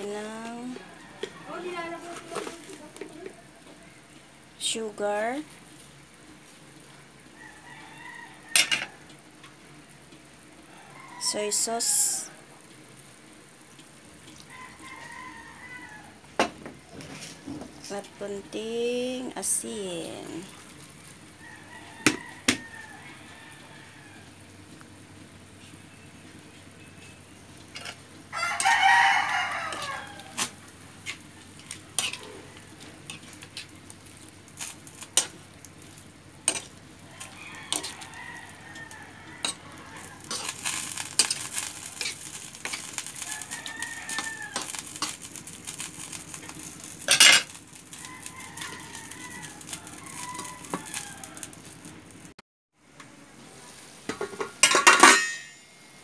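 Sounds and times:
food sizzling: 0:00.0 - 0:52.4
rooster crowing: 0:00.5 - 0:02.0, 0:07.3 - 0:09.1, 0:10.6 - 0:12.6, 0:14.4 - 0:16.4, 0:21.3 - 0:24.6, 0:28.3 - 0:30.7, 0:31.4 - 0:33.1, 0:36.5 - 0:45.2, 0:47.8 - 0:51.9
spatula scraping metal pan: 0:29.7 - 0:33.8, 0:40.2 - 0:43.3.

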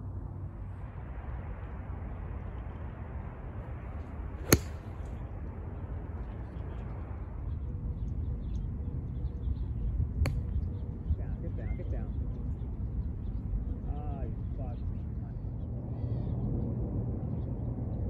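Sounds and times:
golf club striking ball: 0:04.4 - 0:05.2.

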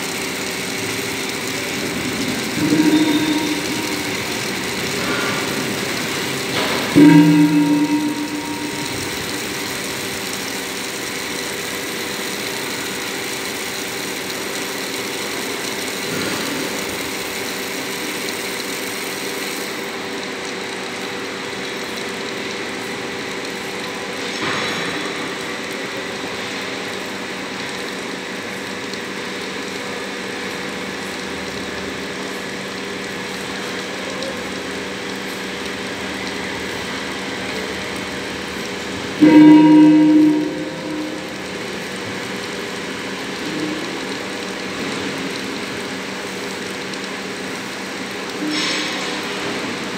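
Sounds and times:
machinery droning: 0:01.0 - 0:11.5, 0:35.9 - 0:44.1.

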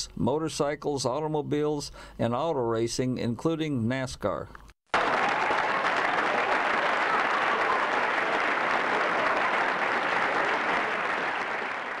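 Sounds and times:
crowd applause: 0:04.9 - 0:12.0.

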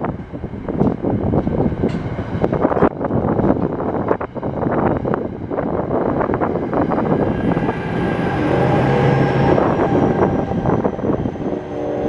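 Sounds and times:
faint high whine rising: 0:06.1 - 0:12.0.

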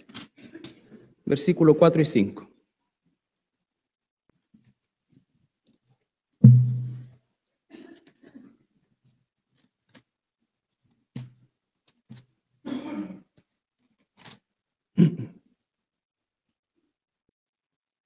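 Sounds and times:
thump against microphone: 0:06.4 - 0:07.1
paper pages rustling: 0:13.4 - 0:14.4.

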